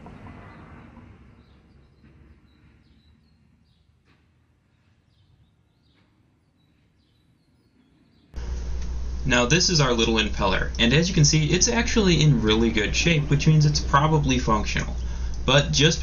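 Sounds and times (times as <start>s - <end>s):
low background rumble: 8.4s - 16.0s.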